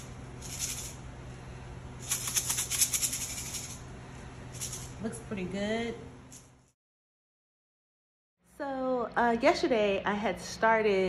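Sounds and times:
seeds rattling in a jar: 0:00.0 - 0:01.1, 0:02.0 - 0:03.8, 0:04.5 - 0:05.0.

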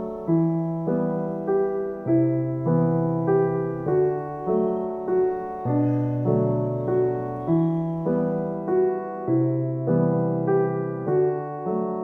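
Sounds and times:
piano keyboard tune: 0:00.0 - 0:12.0.

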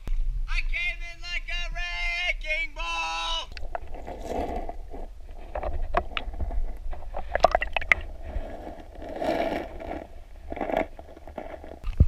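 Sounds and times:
steady low rumble: 0:00.0 - 0:12.0
water splashing around a kayak: 0:03.5 - 0:11.8.

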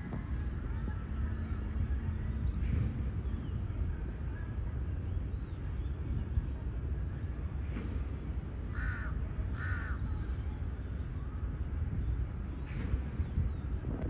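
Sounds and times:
steady low rumble: 0:00.0 - 0:14.0
crow cawing: 0:08.7 - 0:10.0.

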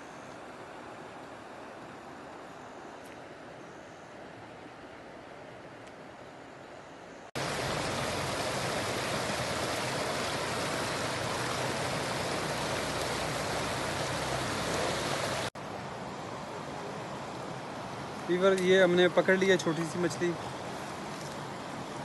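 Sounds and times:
rocky stream rushing: 0:07.4 - 0:22.0.

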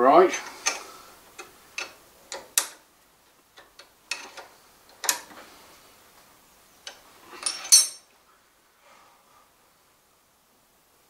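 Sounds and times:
metallic clicks and knocks: 0:01.4 - 0:02.8, 0:03.5 - 0:05.4.

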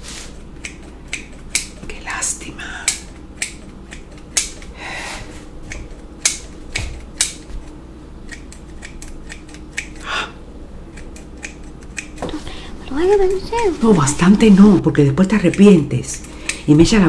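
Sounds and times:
shears snipping hair: 0:00.0 - 0:10.2, 0:10.8 - 0:17.0
hair rustling: 0:10.8 - 0:16.1.

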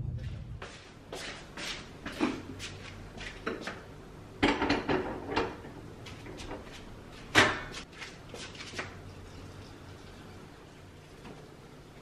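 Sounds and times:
pot clattering on metal grate: 0:04.4 - 0:05.7.

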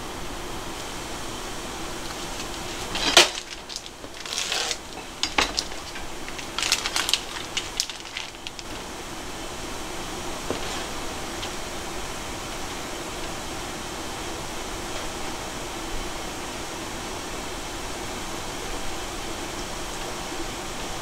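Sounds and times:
steady background hum: 0:00.0 - 0:21.0
sharp crackles and taps: 0:02.0 - 0:08.8
plastic packet crinkling: 0:02.0 - 0:08.9.

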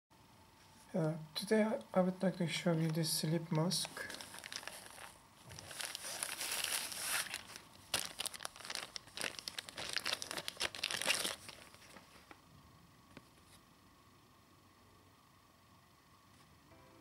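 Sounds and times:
plastic bag crinkling: 0:03.7 - 0:12.4.

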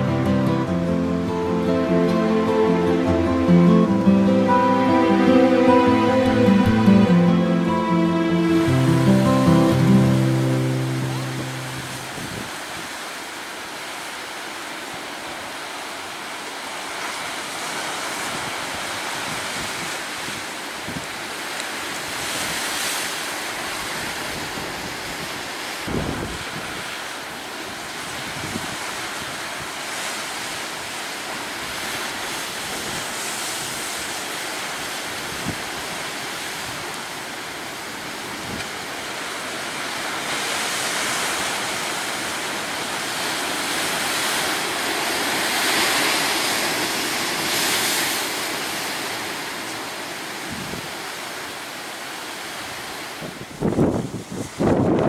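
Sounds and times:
sea surf washing: 0:00.0 - 0:55.0
wind buffeting microphone: 0:53.2 - 0:55.0.

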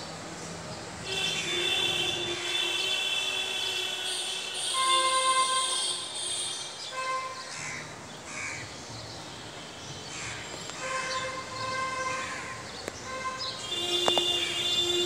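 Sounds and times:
crows cawing: 0:07.5 - 0:08.7, 0:10.1 - 0:11.2, 0:12.0 - 0:12.6.

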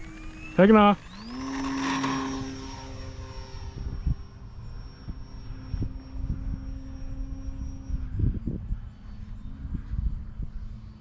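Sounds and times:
model airplane propeller drone: 0:00.0 - 0:11.0
wind gusts on microphone: 0:00.0 - 0:11.0.

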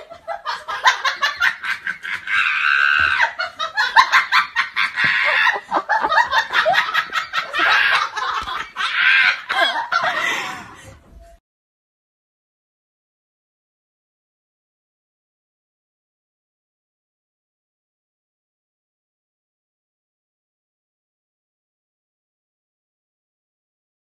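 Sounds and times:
person laughing hard: 0:00.0 - 0:11.0.

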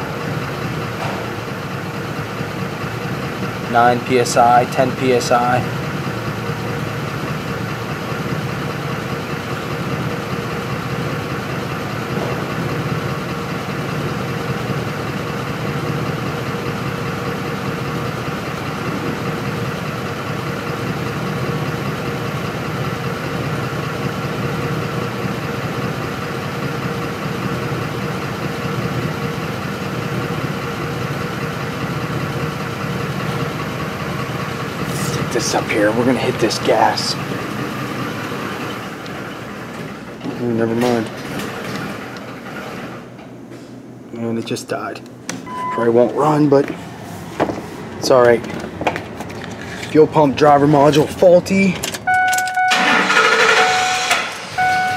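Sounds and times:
engine idling roughly: 0:00.0 - 0:43.2, 0:46.2 - 0:54.9.

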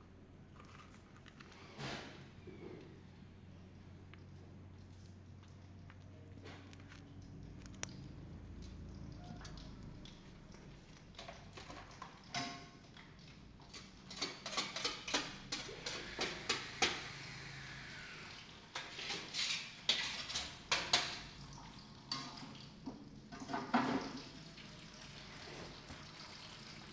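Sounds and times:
dishes and utensils clinking: 0:13.6 - 0:17.1, 0:18.7 - 0:21.3.

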